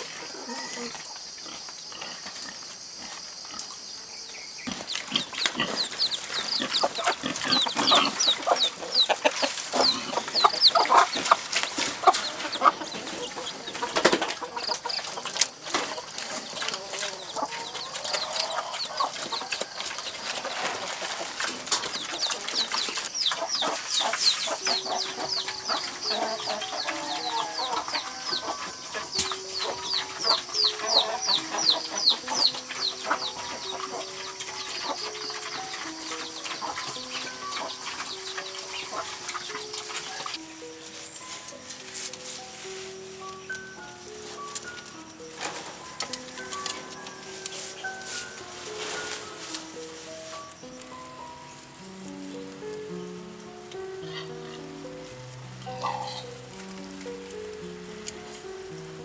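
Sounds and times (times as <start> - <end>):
chickens clucking: 0.0 - 59.0
pigs feeding at a trough: 4.6 - 40.4.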